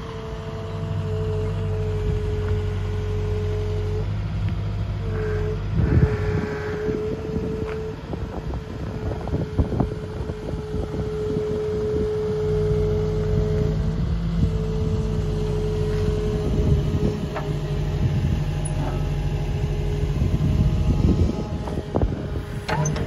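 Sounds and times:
excavator diesel engine running: 0:00.0 - 0:23.0
machine whine: 0:04.9 - 0:23.0
metal clanks and knocks: 0:22.6 - 0:23.0.

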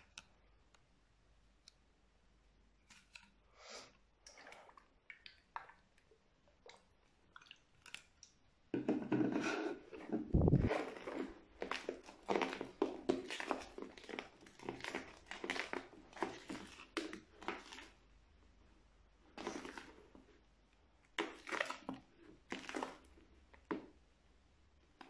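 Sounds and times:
crunchy slime being stirred: 0:09.3 - 0:18.3, 0:19.3 - 0:24.1.

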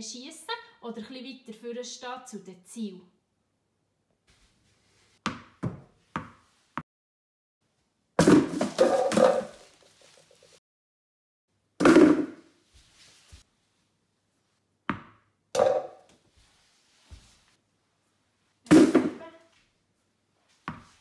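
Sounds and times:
tennis balls knocking on tiled floor: 0:05.3 - 0:06.5, 0:14.9 - 0:16.2.

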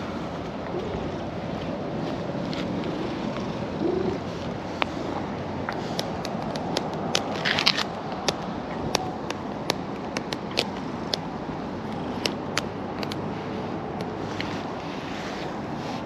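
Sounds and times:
cat claws scratching denim: 0:00.8 - 0:05.2.

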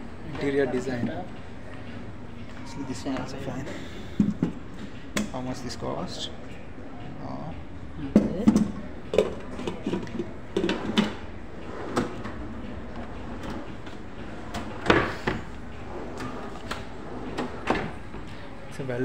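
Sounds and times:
steady background noise: 0:00.0 - 0:19.0
kitchen drawers and cabinet doors clunking: 0:08.2 - 0:18.0.

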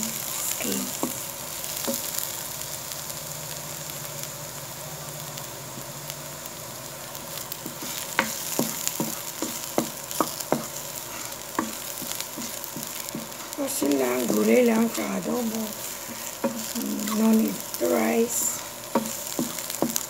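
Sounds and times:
garlic sizzling in oil: 0:00.0 - 0:20.0
wooden spatula scraping pan: 0:07.6 - 0:20.0.

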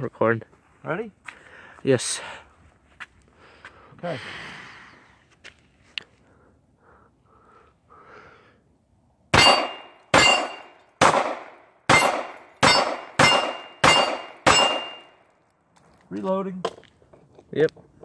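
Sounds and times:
pistol shots: 0:09.3 - 0:15.1
steel plate ringing: 0:09.4 - 0:10.8, 0:11.9 - 0:15.2.

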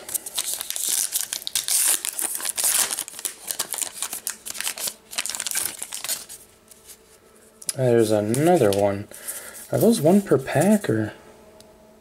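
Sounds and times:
foil wrapper tearing and crinkling: 0:00.0 - 0:06.4.

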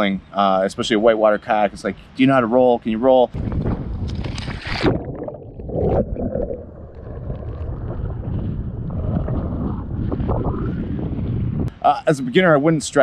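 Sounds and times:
wind rumbling on microphone: 0:03.3 - 0:11.8.

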